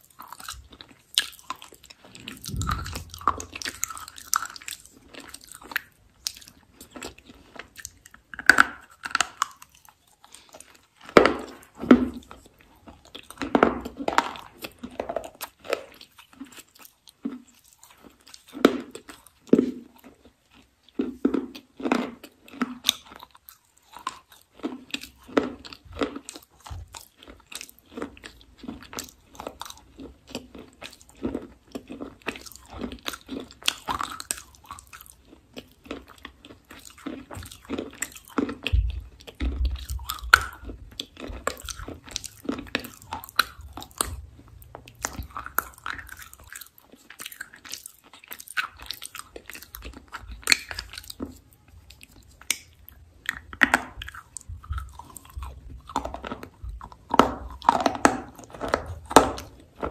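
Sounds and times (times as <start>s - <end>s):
biting and chewing crunches: 0.0s - 59.9s
low rumble: 2.3s - 3.9s.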